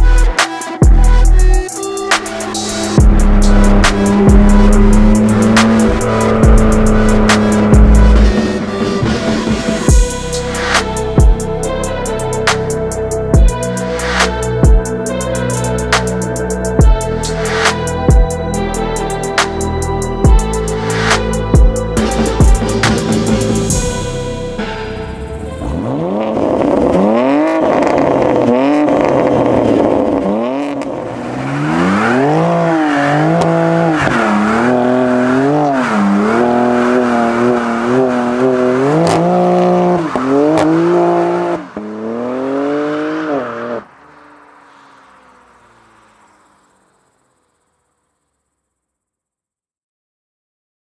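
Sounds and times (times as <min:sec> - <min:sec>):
car engine revving hard: 0:02.2 - 0:10.0, 0:25.3 - 0:47.0.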